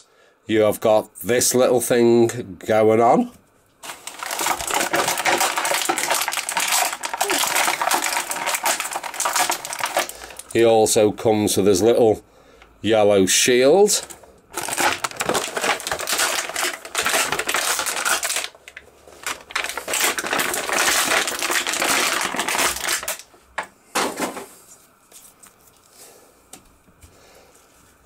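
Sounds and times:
plastic packaging crinkling: 3.8 - 11.0, 13.8 - 23.4.

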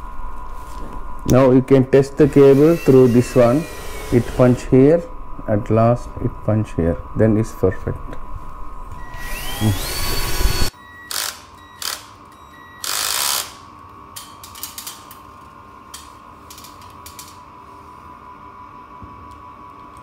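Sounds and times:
cordless drill whirring: 2.2 - 4.7, 9.0 - 12.1, 12.8 - 13.6.

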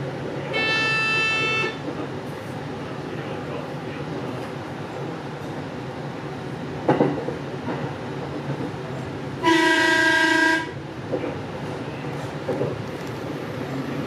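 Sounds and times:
electric train rumbling: 0.0 - 14.0
train horn: 0.5 - 1.8, 9.4 - 10.8.

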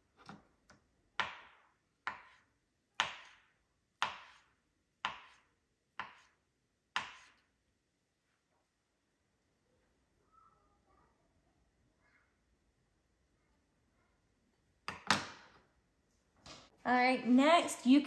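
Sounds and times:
knife chopping on cutting board: 1.2 - 2.4, 3.0 - 3.4, 4.0 - 6.3, 6.9 - 7.4.

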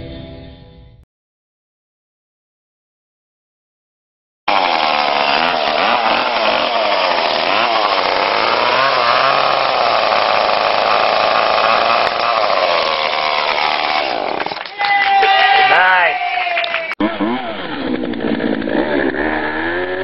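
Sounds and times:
chainsaw running: 4.5 - 16.0, 17.0 - 20.0.

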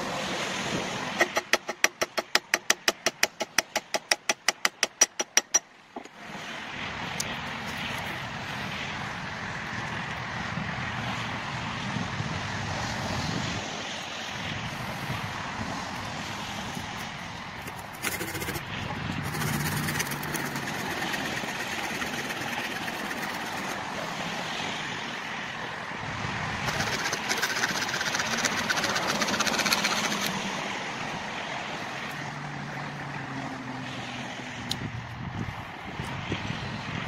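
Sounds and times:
steady outdoor rush: 0.0 - 37.0
knife blade shaving wood: 17.6 - 23.9, 26.6 - 30.4.

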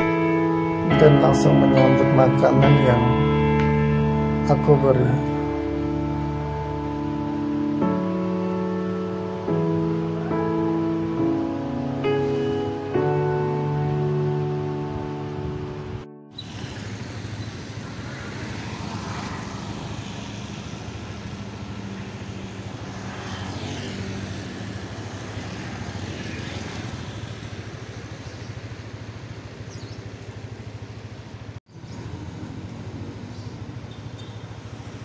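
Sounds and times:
low engine hum: 0.0 - 35.0
vehicles swishing past on wet road: 1.5 - 35.0.

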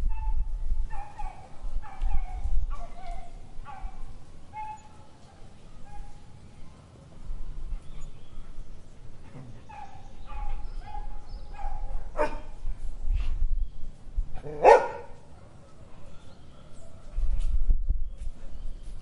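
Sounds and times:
dog barking: 0.9 - 2.9, 3.6 - 4.0, 9.7 - 12.5, 14.4 - 15.8.

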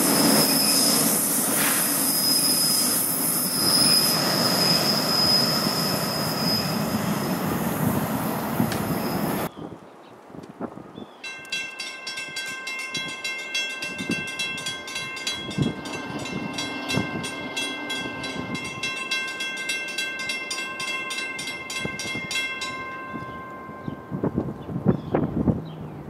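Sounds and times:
crossing bell ringing: 11.2 - 24.6.

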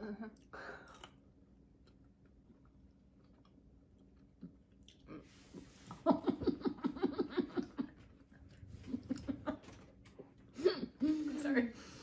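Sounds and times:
woman laughing: 6.0 - 8.0, 8.8 - 9.8.

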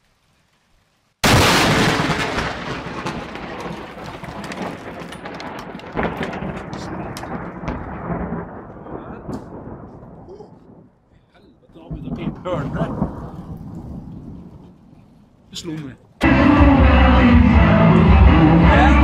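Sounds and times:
loud thunderclap: 1.2 - 11.0, 11.7 - 14.8
rumbling crackling thunder: 1.2 - 15.5.

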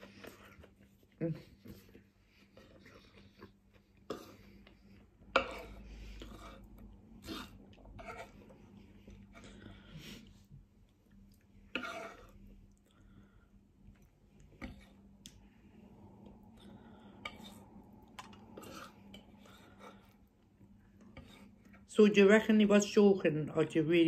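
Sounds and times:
fork scraping on wooden board: 1.8 - 8.6, 11.7 - 12.5, 18.4 - 20.2, 21.1 - 21.8.

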